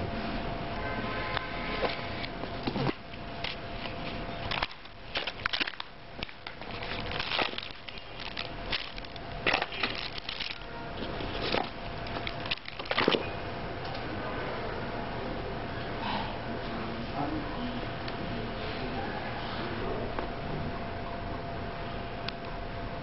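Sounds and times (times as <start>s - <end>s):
cardboard packaging rustling: 1.8s - 13.3s
plastic bags crinkling: 1.9s - 13.3s.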